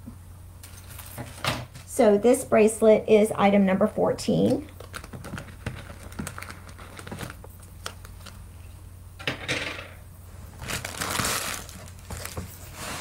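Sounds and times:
low electrical hum: 0:00.0 - 0:13.0
packaging crinkling: 0:04.6 - 0:08.7, 0:10.5 - 0:13.0.

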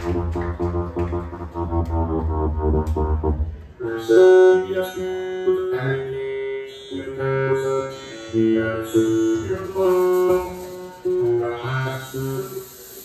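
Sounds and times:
sustained keyboard notes: 0:00.0 - 0:03.6.

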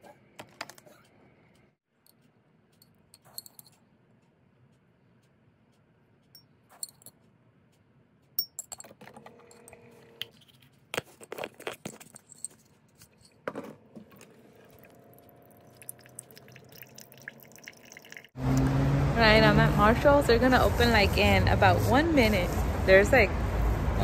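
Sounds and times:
spoon clinking on glass and mug: 0:03.2 - 0:03.7, 0:15.7 - 0:18.3
hot water pouring into mug: 0:14.5 - 0:18.4.

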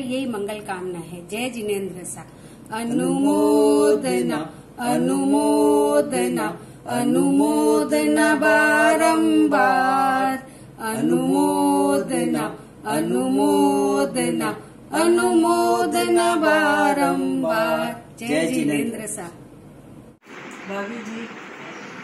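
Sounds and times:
woman singing unaccompanied: 0:02.7 - 0:19.3.

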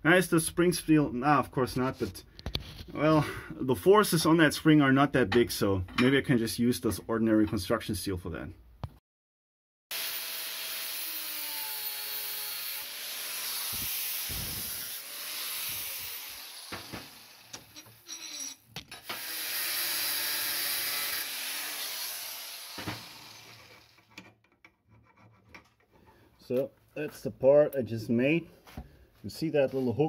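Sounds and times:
metal tube being cut: 0:09.9 - 0:24.2.

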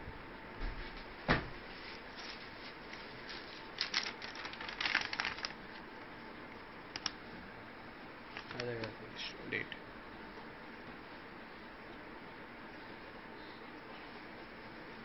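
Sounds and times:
paper crinkling: 0:01.7 - 0:05.8, 0:08.3 - 0:09.0.

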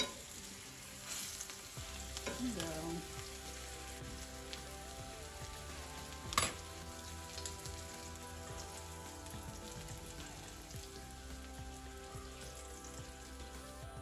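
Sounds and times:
cutlets sizzling in oil: 0:00.0 - 0:14.0.

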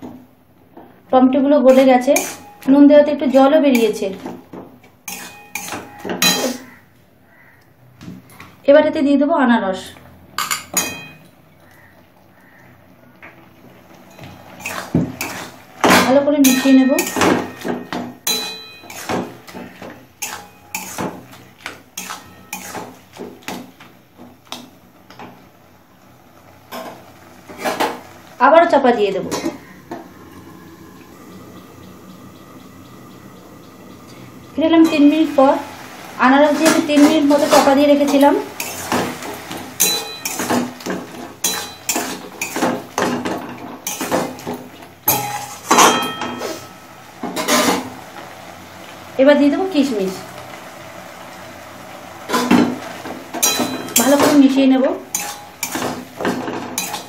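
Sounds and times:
metal spatula scraping metal pan: 0:01.7 - 0:02.8, 0:05.1 - 0:06.7, 0:14.1 - 0:15.6, 0:16.4 - 0:23.6, 0:36.4 - 0:44.5, 0:45.1 - 0:47.9, 0:53.4 - 0:57.0.

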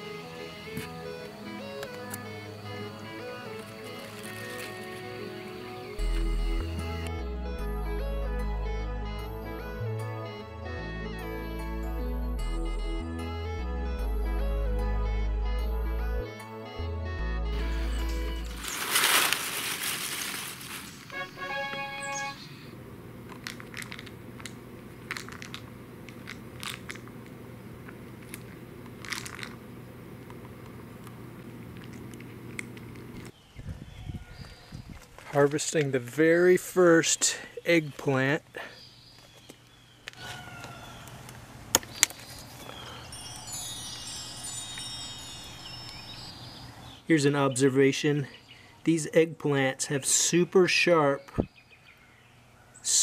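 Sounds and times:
high chiming tones: 0:00.0 - 0:16.9, 0:17.5 - 0:18.9, 0:42.8 - 0:46.9
low steady hum: 0:00.0 - 0:33.3
kibble rattling in plastic toy: 0:23.4 - 0:24.5, 0:25.1 - 0:27.0, 0:28.2 - 0:29.6.

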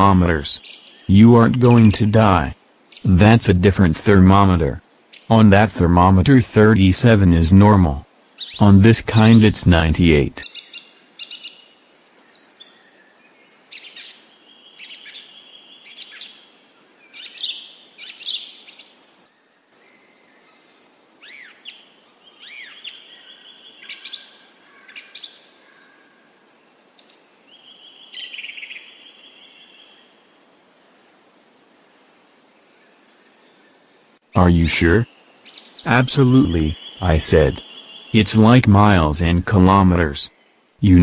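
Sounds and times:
birds chirping and calling: 0:00.0 - 0:03.6, 0:17.1 - 0:19.3, 0:34.4 - 0:41.0.

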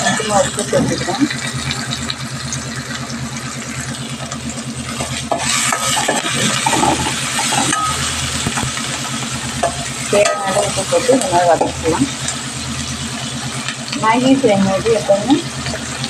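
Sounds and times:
low pulsing mechanical hum: 0:00.0 - 0:16.0
vegetables sizzling in oil: 0:00.0 - 0:16.0.

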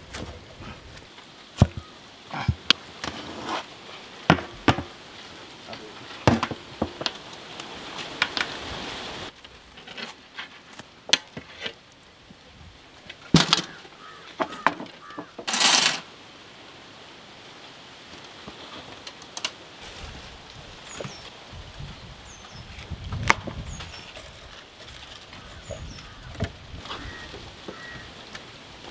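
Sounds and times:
scraping on steel platter: 0:15.4 - 0:16.0.

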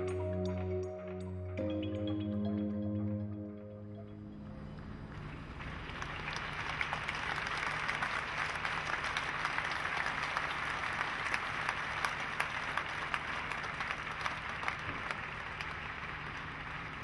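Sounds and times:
low steady hum: 0:00.0 - 0:07.5
crowd applauding: 0:05.1 - 0:17.0.

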